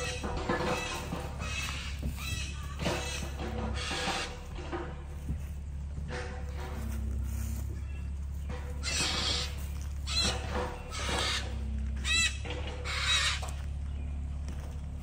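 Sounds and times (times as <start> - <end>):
digging machine engine running: 0.0 - 15.0.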